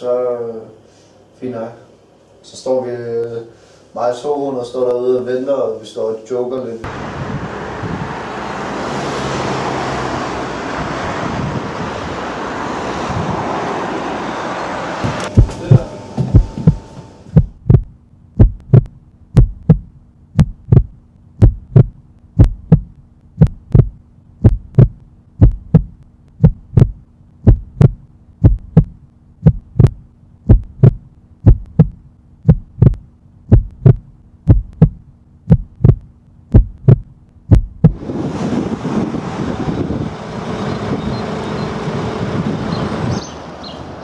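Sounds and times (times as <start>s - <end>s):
heartbeat thumps: 15.0s - 38.0s.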